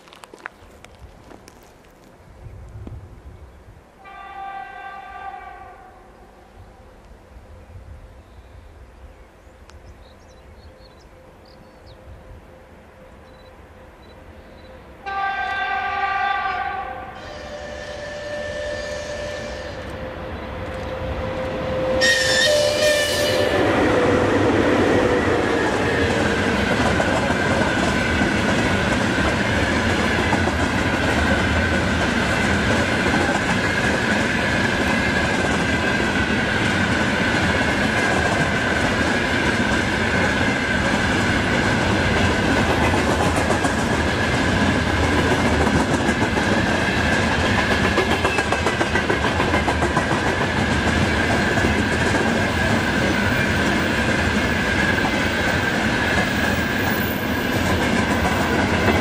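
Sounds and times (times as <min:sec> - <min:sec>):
train wheels rumbling on rails: 0:17.1 - 0:59.0.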